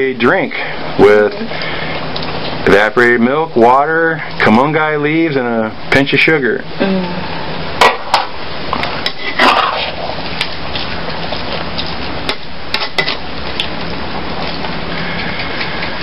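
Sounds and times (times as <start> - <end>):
metal ladle scraping a wok: 9.0 - 10.0.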